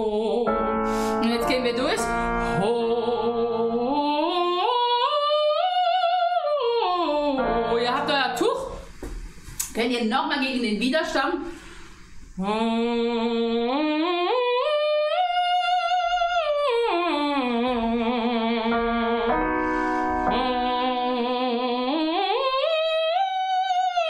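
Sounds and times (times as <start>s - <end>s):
quick breath: 0.8s - 1.2s, 11.5s - 12.4s.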